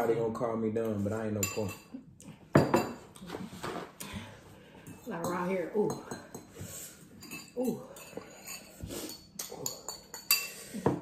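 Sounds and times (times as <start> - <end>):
spoons clinking against bowls: 0.8 - 1.9, 4.8 - 11.0.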